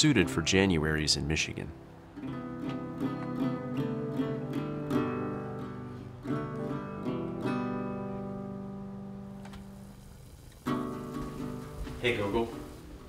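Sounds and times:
acoustic guitar strummed chords: 0:00.0 - 0:13.0.

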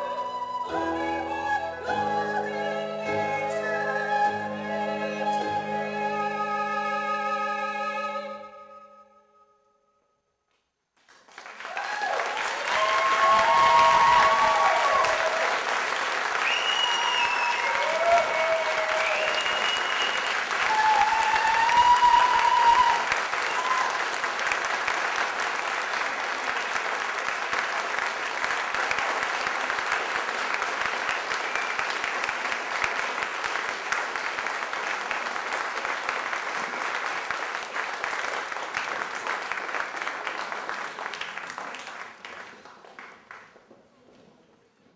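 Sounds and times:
audience applauding: 0:11.0 - 0:43.7.

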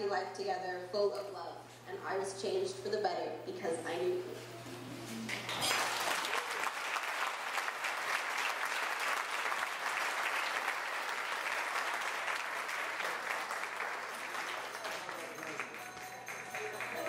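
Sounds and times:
crowd applauding: 0:05.3 - 0:17.0.

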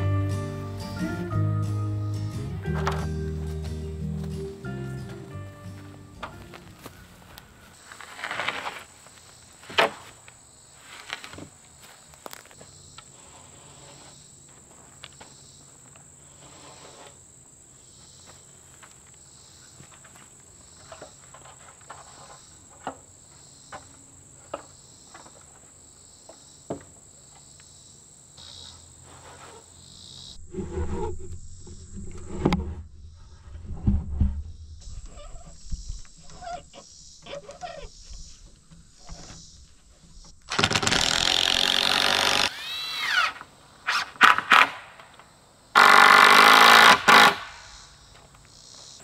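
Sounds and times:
insects droning: 0:00.0 - 0:49.0
board rustling: 0:05.8 - 0:11.6, 0:19.9 - 0:23.1, 0:29.0 - 0:29.7.

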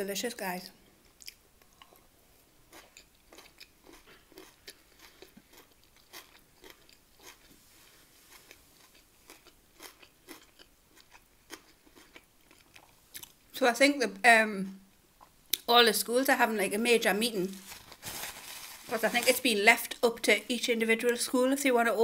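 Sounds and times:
chewing food: 0:01.0 - 0:02.1, 0:02.7 - 0:07.6, 0:08.3 - 0:13.4.

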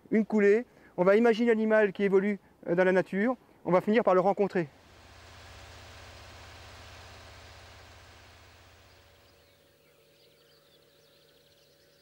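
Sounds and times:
soft hiss: 0:00.1 - 0:12.0
low hum: 0:04.6 - 0:11.2.

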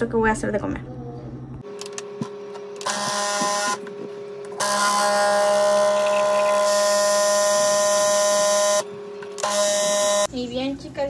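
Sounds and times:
espresso machine pump buzzing: 0:02.8 - 0:03.8, 0:04.5 - 0:10.3.

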